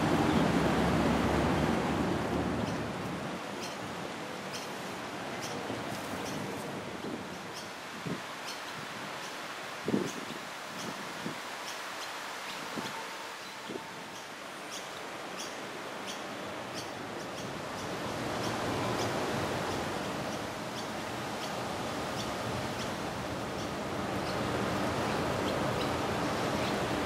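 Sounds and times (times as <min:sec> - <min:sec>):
steady rushing noise: 0:00.0 - 0:08.3.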